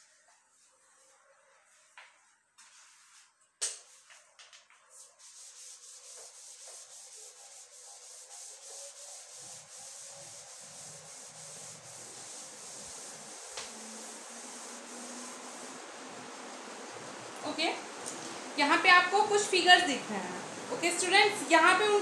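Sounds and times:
eraser rubbing on whiteboard: 2.6s - 15.8s.

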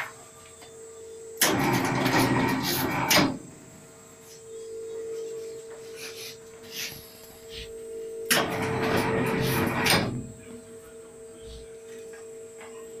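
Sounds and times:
machine hum: 0.0s - 13.0s
harsh scraping: 1.7s - 3.2s, 8.6s - 10.2s.

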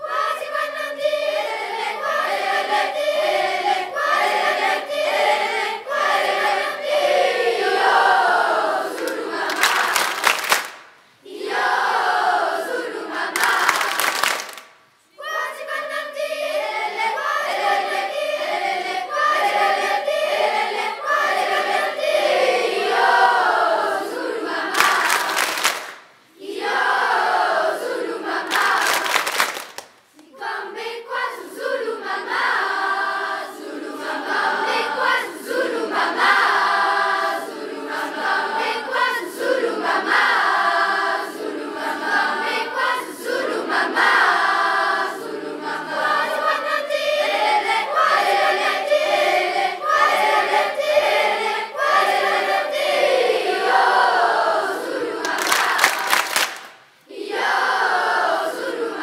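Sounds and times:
choir of teenagers singing: 0.0s - 14.5s, 15.2s - 29.5s, 30.2s - 59.0s.

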